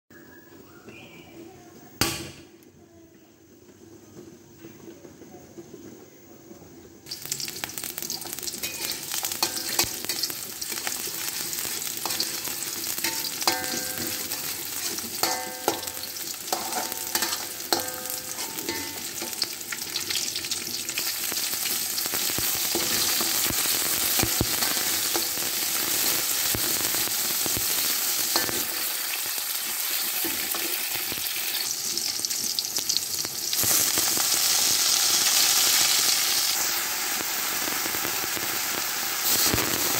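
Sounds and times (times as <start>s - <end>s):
food sizzling in hot oil: 7.0s - 39.9s
metal spatula scraping a wok: 7.3s - 20.2s.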